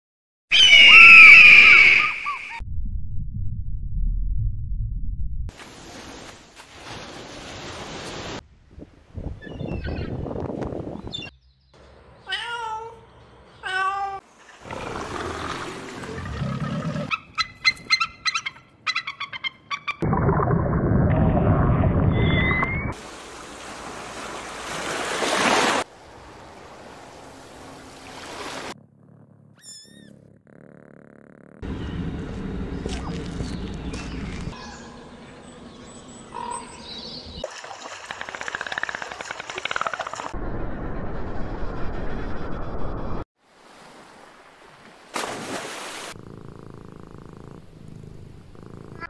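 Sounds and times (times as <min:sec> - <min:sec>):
small waves washing: 0:23.0 - 0:28.8, 0:43.4 - 0:46.2
cat purring: 0:28.8 - 0:31.6, 0:46.2 - 0:49.0.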